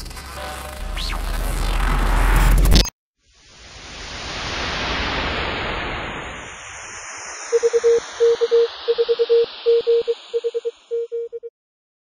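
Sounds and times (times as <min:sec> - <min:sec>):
radio static hiss: 0:05.5 - 0:10.8
morse code tone: 0:07.5 - 0:11.5.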